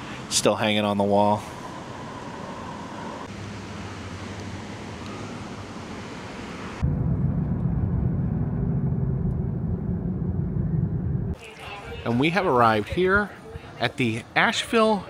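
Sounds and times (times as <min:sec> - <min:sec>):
muffled low rumble: 0:06.8 - 0:11.4.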